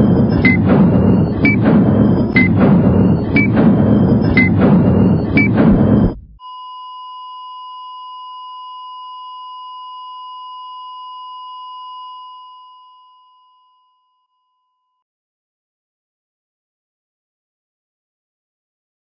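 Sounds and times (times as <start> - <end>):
loud music: 0.0 - 6.4
high electronic beep tone: 0.0 - 6.6.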